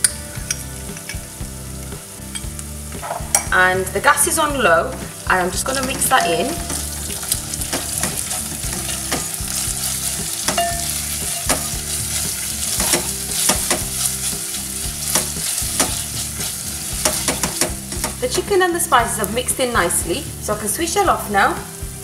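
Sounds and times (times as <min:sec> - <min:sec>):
meat sizzling: 0:00.0 - 0:22.0
spatula scraping and tapping pot: 0:05.8 - 0:18.2.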